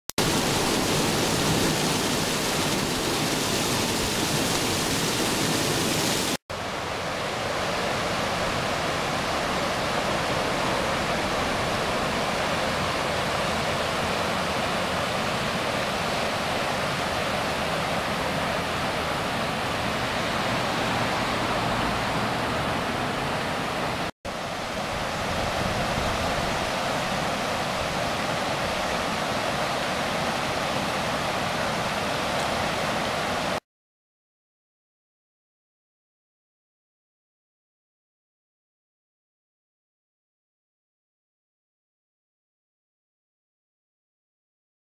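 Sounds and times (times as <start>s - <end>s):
flooded creek rushing roar: 0.2s - 33.6s.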